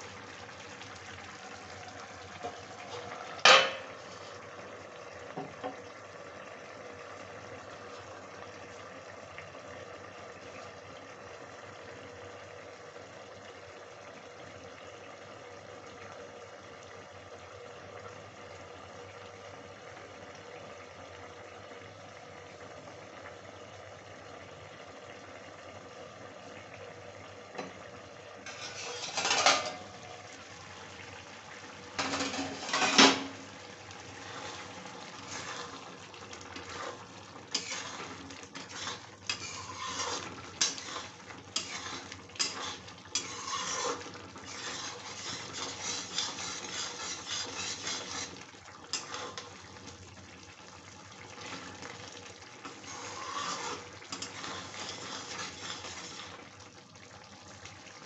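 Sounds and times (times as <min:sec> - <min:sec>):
metal ladle scraping a pan: 0:02.9 - 0:04.4, 0:28.5 - 0:29.9, 0:32.0 - 0:33.4, 0:36.6 - 0:49.5, 0:52.6 - 0:56.4
metal lid clattering: 0:03.4 - 0:03.9, 0:28.6 - 0:29.8, 0:32.0 - 0:33.4.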